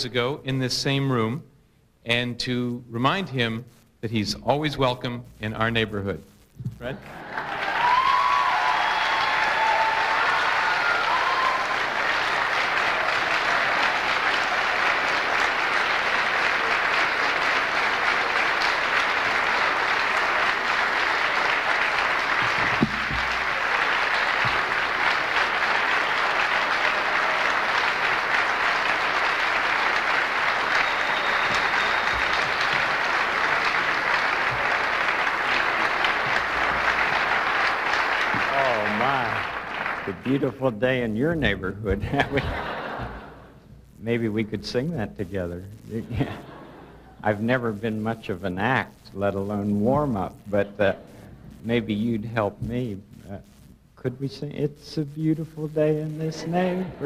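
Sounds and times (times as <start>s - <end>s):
large audience applauding: 7.0s - 41.4s.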